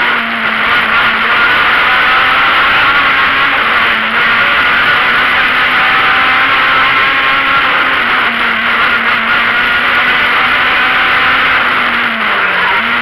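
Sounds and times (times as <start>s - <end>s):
car engine revving: 0.0s - 13.0s
road noise: 0.0s - 13.0s.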